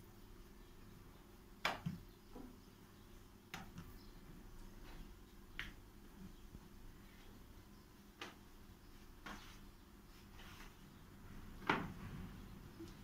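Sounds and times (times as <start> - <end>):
dough snapping and slapping: 1.6 - 2.1, 3.5 - 4.0, 5.5 - 5.9, 8.0 - 9.7.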